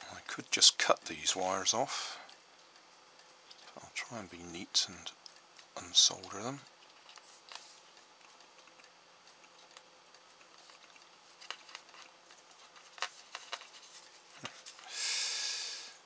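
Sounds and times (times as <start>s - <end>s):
hiss: 14.8s - 16.0s.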